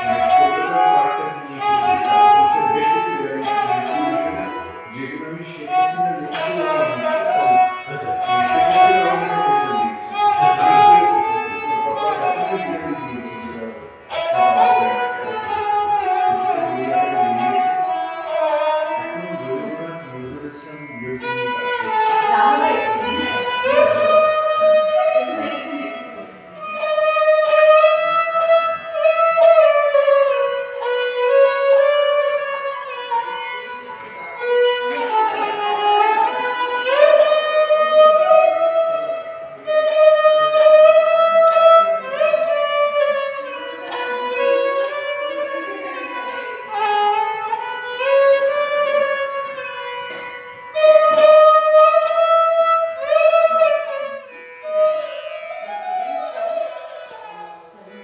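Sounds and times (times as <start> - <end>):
bowed string solo melody: 0.0 - 58.0.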